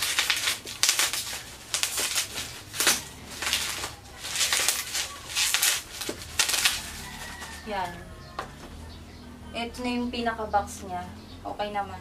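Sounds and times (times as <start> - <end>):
bubble wrap crinkling: 0.0 - 8.6.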